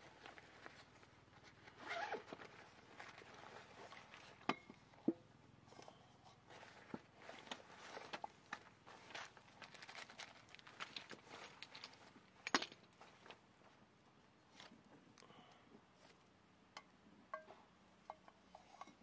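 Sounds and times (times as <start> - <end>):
zipper: 1.7 - 2.5.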